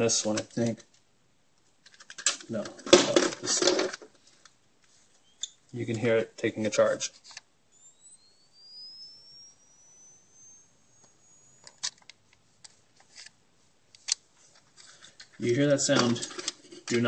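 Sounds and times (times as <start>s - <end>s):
camera flash charging whine: 6.8s - 13.4s
sharp clicks: 7.3s - 13.3s.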